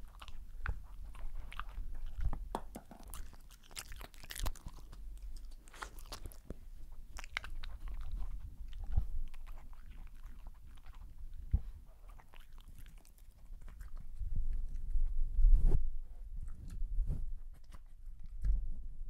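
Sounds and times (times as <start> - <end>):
dog chewing food: 0.0 - 15.2.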